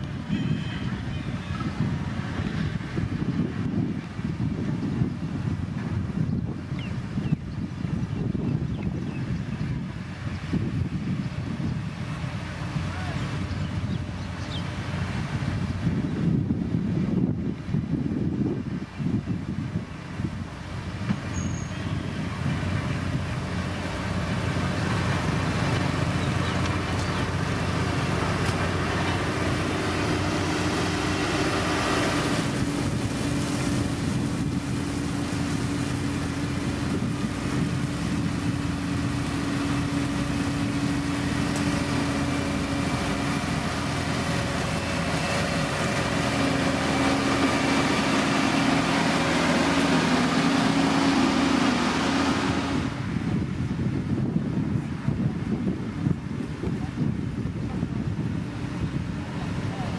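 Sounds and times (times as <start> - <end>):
diesel machinery engine droning: 0.0 - 59.9.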